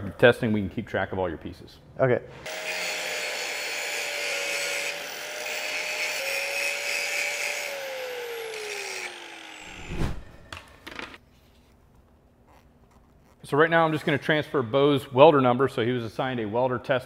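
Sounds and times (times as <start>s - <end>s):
angle grinder grinding steel: 2.5s - 9.9s
grinder motor winding down: 7.6s - 9.7s.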